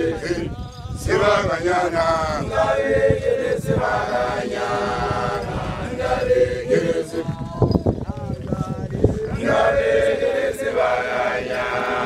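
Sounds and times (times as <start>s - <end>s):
men chanting in unison: 0.0s - 12.0s.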